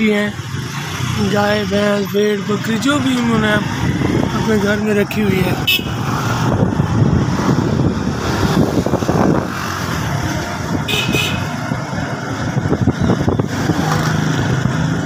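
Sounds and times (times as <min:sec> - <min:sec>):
wind noise on microphone: 0:03.4 - 0:15.0.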